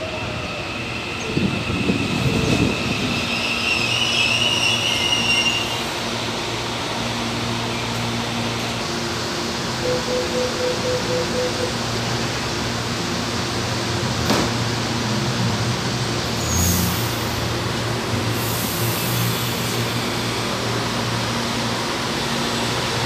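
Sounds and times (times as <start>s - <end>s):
train humming: 0.0s - 23.0s
high wheel and brake squeal: 2.2s - 5.9s, 16.4s - 17.1s
beeping signal: 9.8s - 11.8s.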